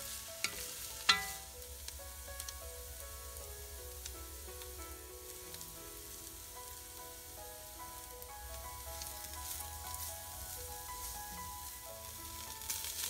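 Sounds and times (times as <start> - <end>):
wooden spoon stirring: 0.0 - 1.8
soft background music: 0.0 - 13.0
vegetables sizzling in a pot: 0.0 - 13.0.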